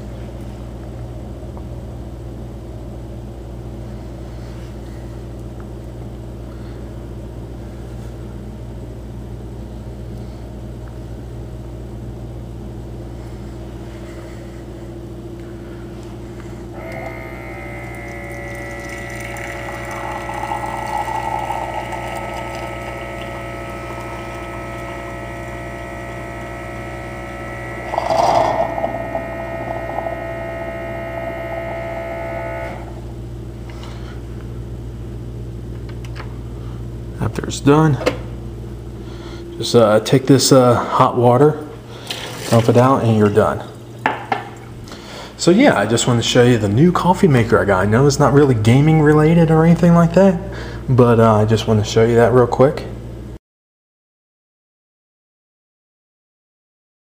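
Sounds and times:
coffee maker humming: 0.0s - 51.8s
hot water running into cup: 16.8s - 31.0s, 42.1s - 43.0s.

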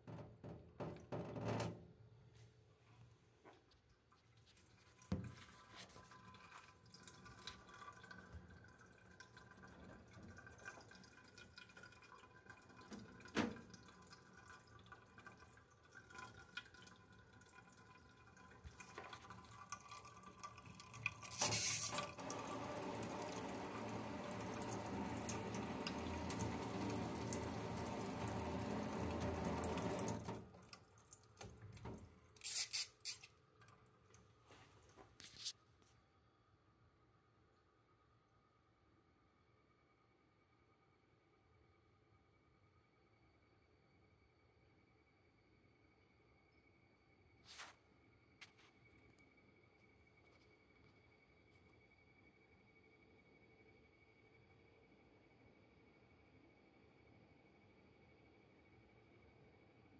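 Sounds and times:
tap water running into steel sink: 4.7s - 33.3s.

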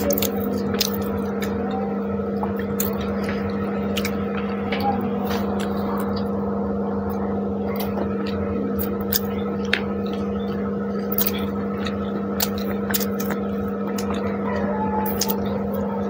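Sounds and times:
steady hum: 0.0s - 16.0s
chewing and lip smacks: 2.4s - 6.4s, 7.1s - 16.0s.

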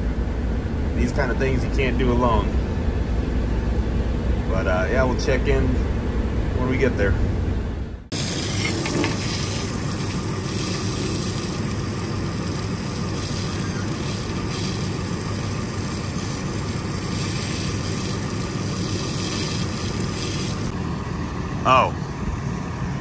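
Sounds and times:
garden hose spraying water: 8.1s - 20.7s.

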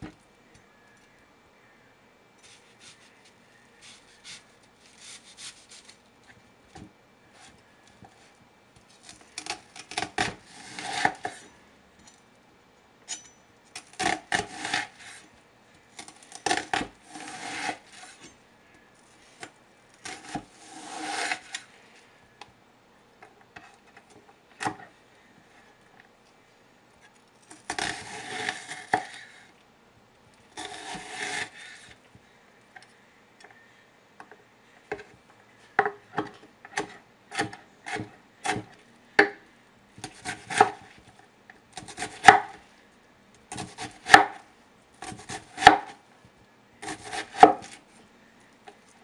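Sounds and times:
knife slicing onion: 2.4s - 6.0s, 9.4s - 11.5s, 13.8s - 15.2s, 16.0s - 18.3s, 19.4s - 21.6s, 27.5s - 29.4s, 30.6s - 32.0s, 36.7s - 39.4s, 40.0s - 40.9s, 41.8s - 42.6s, 43.5s - 44.4s, 45.0s - 46.0s, 46.8s - 47.8s.

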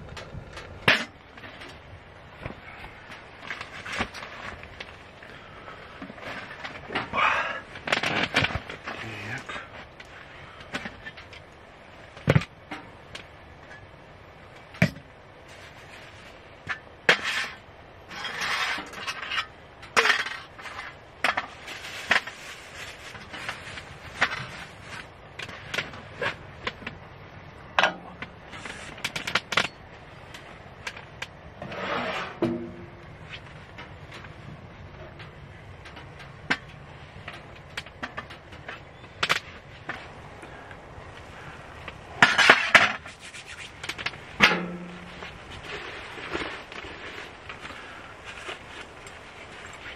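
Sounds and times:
rustling: 14.5s - 27.1s, 27.8s - 49.9s.

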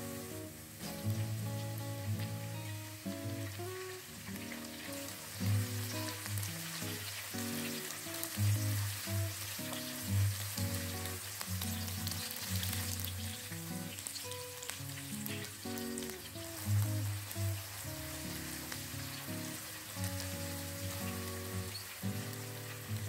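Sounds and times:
vegetables sizzling in hot oil: 0.0s - 23.0s.

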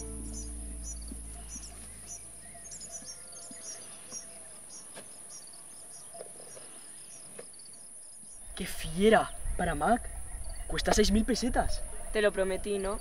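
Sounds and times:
low sustained music note: 0.0s - 3.4s.

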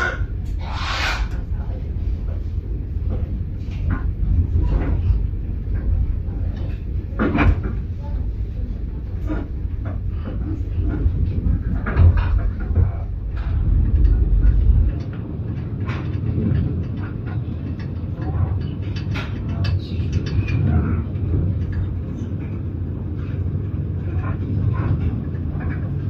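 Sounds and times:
train rumbling: 0.0s - 26.0s.

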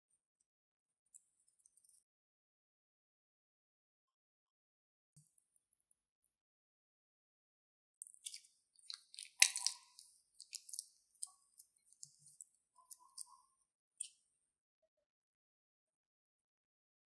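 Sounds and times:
sticky slime clicks and crackles: 8.0s - 13.3s.

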